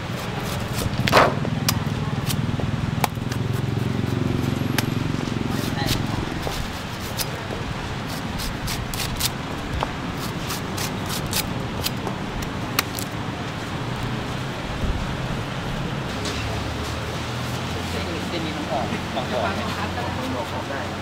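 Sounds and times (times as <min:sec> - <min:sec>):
street traffic rumble: 0:00.0 - 0:21.0.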